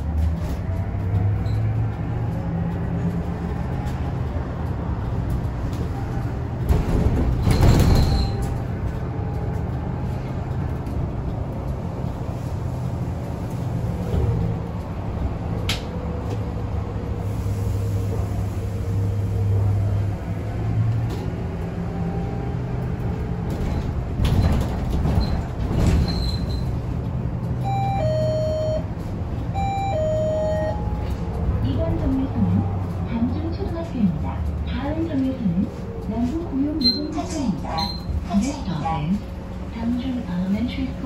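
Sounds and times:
bus engine and road hum: 0.0 - 41.0
rattles and knocks: 6.6 - 9.0, 23.4 - 27.2.

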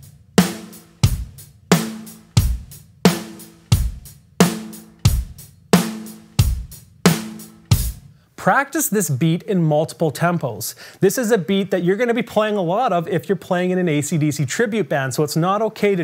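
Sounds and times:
bass drum: 0.0 - 8.2.

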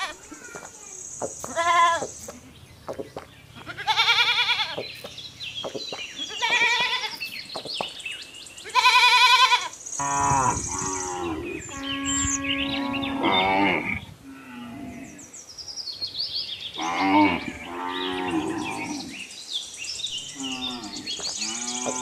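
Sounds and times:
goat bleating: 0.0 - 0.7, 1.5 - 2.5, 3.6 - 4.8, 6.2 - 7.2, 8.6 - 9.7.

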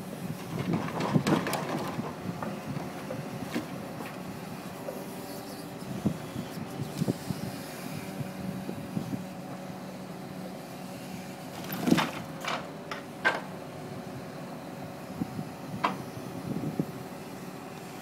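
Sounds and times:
truck engine and hydraulics humming: 0.0 - 18.0
logs knocking onto a pile: 0.5 - 3.8, 11.6 - 13.5.

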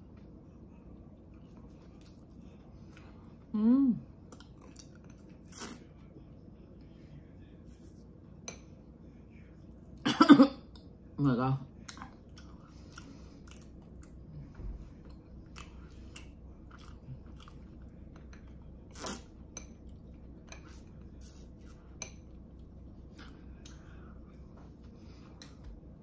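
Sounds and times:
person chewing pastry: 0.9 - 3.4, 4.3 - 6.1, 11.8 - 25.6.

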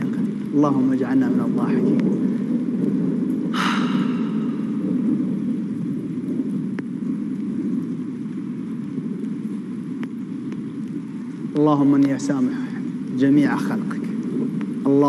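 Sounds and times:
steady rain falling: 0.0 - 15.0
faint drip-like ticks: 6.3 - 15.0.

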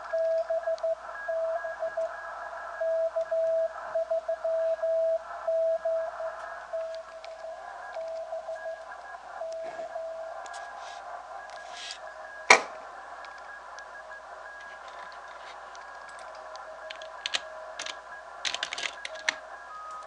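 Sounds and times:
morse code tone: 0.0 - 12.6
faint steady radio tones: 0.0 - 20.0
radio band hiss: 5.2 - 19.9
sharp radio clicks: 10.3 - 20.0.

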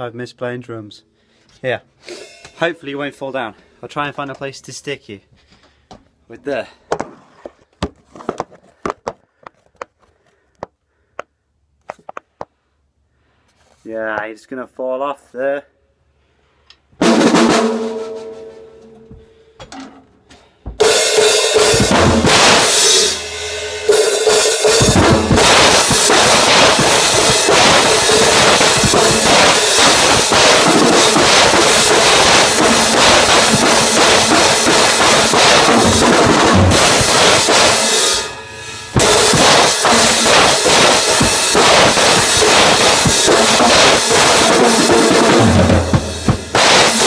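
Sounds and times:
cymbal crashes: 2.0 - 2.7, 17.1 - 19.2, 20.8 - 47.0
drum beat: 17.0 - 18.4, 20.8 - 23.3, 23.9 - 38.3, 38.9 - 47.0.

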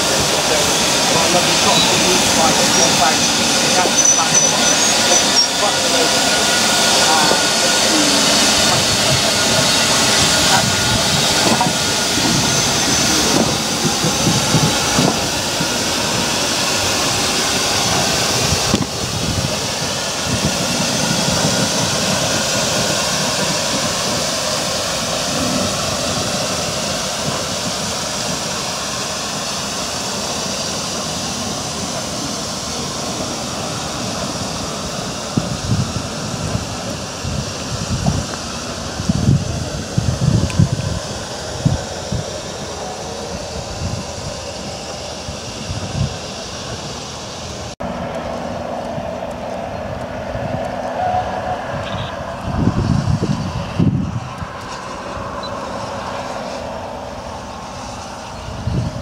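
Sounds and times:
steam hissing: 0.0 - 59.0
train running on rails: 0.0 - 59.0
wind gusts on microphone: 0.0 - 59.0.

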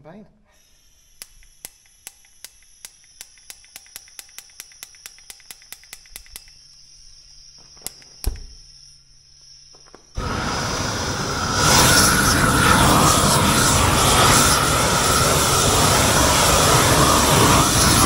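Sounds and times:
gas torch hissing: 0.6 - 18.0
torch ignition clicks: 1.1 - 6.8, 7.7 - 8.7.

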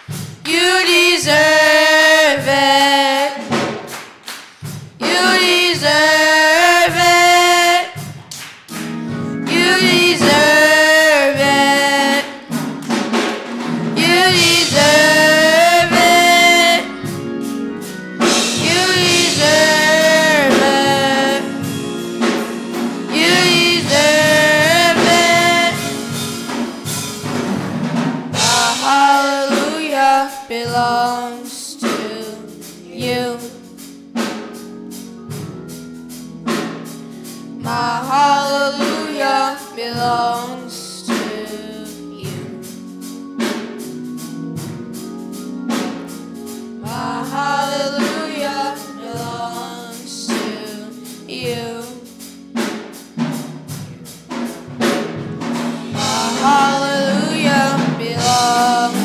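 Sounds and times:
choir singing: 0.0 - 3.6, 5.0 - 8.0, 8.7 - 33.4, 37.5 - 42.7, 45.3 - 52.2, 54.8 - 59.0
organ and keyboard: 0.0 - 59.0
drum hits: 2.4 - 6.2, 6.8 - 17.5, 18.2 - 29.8, 53.3 - 59.0.

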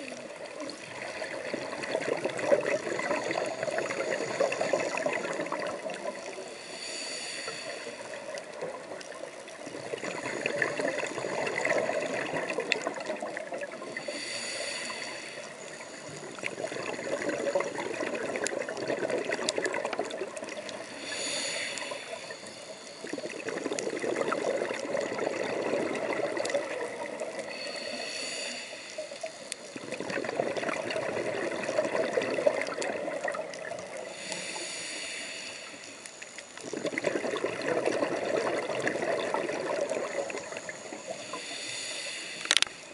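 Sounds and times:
exhaust bubbles bubbling: 0.8 - 6.2, 9.7 - 13.9, 16.3 - 20.6, 23.1 - 27.4, 29.8 - 34.0, 36.6 - 40.6
scuba regulator hissing inhale: 2.6 - 9.0, 9.9 - 18.7, 19.3 - 32.8, 33.9 - 37.2, 38.4 - 42.9
faint clicks: 28.5 - 31.0, 42.1 - 42.9.

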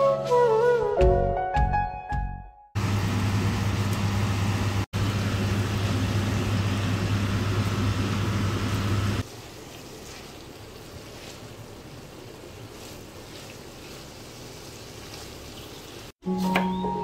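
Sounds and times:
appliance fan humming: 2.8 - 14.6.

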